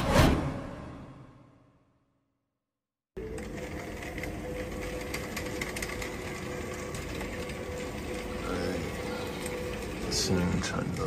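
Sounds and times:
machine whirring hum: 3.2 - 11.0.

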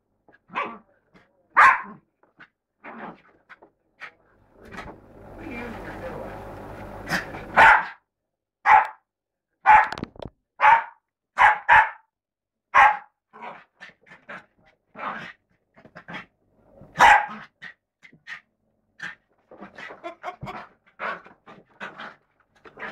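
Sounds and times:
dog barking: 0.5 - 0.8, 1.5 - 2.0, 7.1 - 8.0, 8.6 - 10.0, 10.6 - 12.1, 12.7 - 13.2, 16.9 - 17.5
dog yipping: 1.6 - 2.0, 8.7 - 9.0, 9.6 - 10.0, 10.6 - 12.0, 12.8 - 13.1, 17.0 - 17.3.

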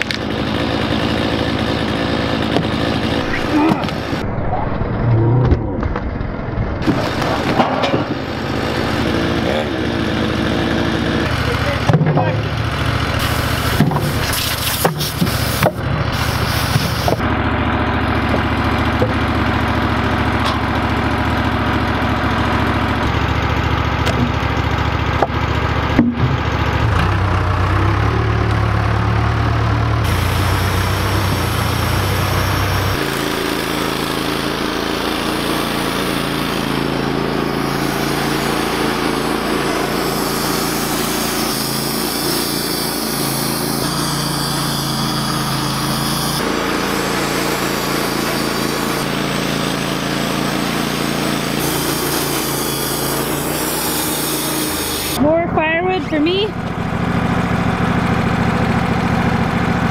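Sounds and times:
diesel engine running: 0.0 - 59.9
sharp knocks: 26.0 - 26.5.

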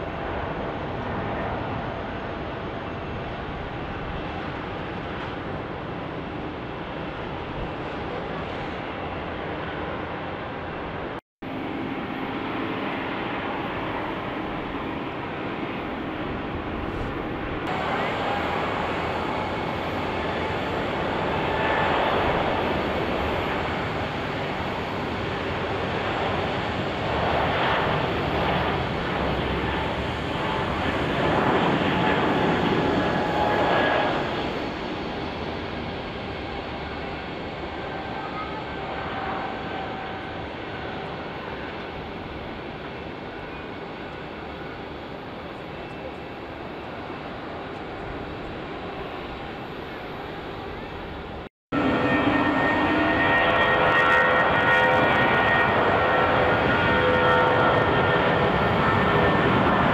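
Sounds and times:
jet engines roaring at takeoff: 0.0 - 59.9.

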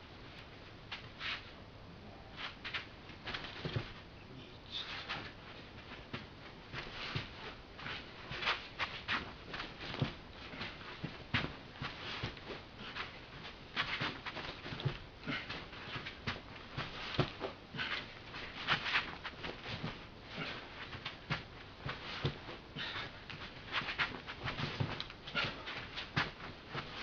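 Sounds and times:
bare feet shuffling on carpet: 0.2 - 1.6, 2.3 - 4.1, 4.8 - 27.0
clothing swishing: 2.3 - 4.1, 4.7 - 27.0.

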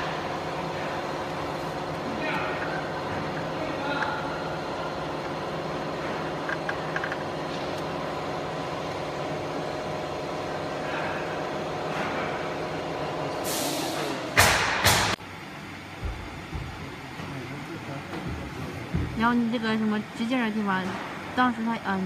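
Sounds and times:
workshop machinery humming: 0.0 - 22.0
loud hissing bursts: 13.4 - 15.1.

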